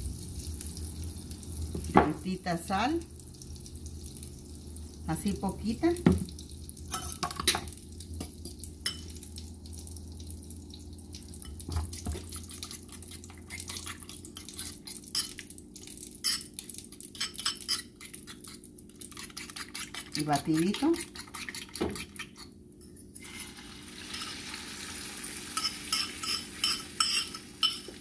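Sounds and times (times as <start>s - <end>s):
fork beating eggs in bowl: 11.4s - 15.4s, 16.2s - 22.6s, 25.5s - 28.0s.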